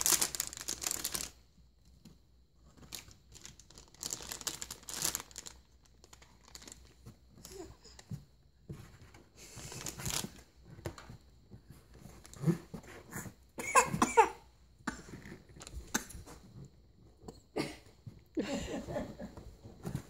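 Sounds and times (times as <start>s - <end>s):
foil bag crackling: 0.0s - 1.4s, 2.8s - 7.0s, 9.6s - 10.5s.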